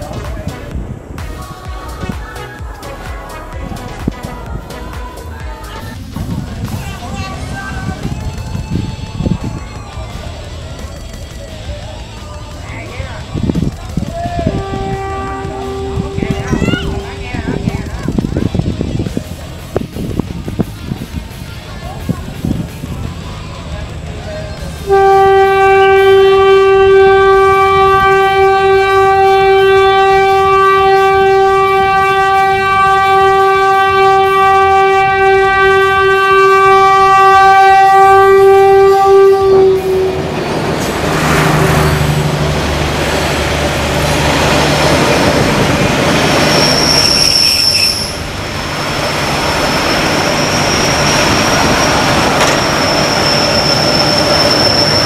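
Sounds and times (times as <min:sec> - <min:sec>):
train rumble and wheel clatter: 0:00.0 - 0:55.0
locomotive horn blast: 0:14.3 - 0:17.7, 0:24.8 - 0:55.0
high wheel squeal: 0:43.1 - 0:55.0.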